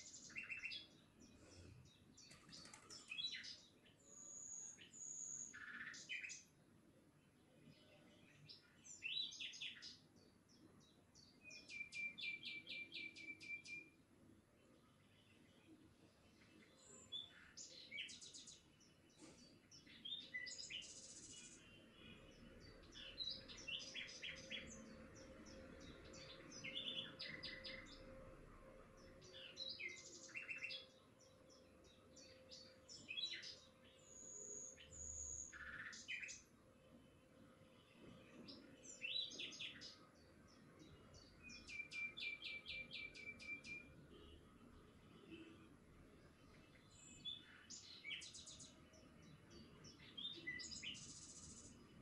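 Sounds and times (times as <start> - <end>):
small songbirds chirping: 0.0 - 52.0.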